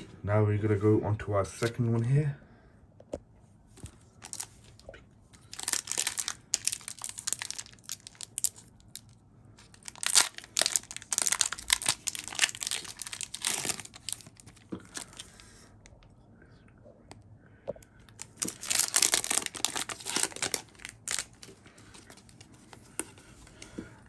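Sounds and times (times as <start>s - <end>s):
foil wrapper crinkling and tearing: 4.2s - 4.5s, 5.4s - 15.5s, 18.1s - 22.5s.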